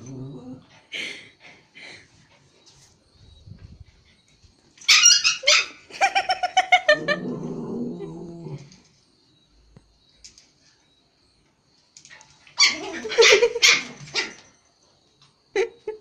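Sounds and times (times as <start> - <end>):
dog growling: 0.0 - 0.8, 6.9 - 8.7
dog yipping: 4.8 - 5.8, 12.6 - 14.4.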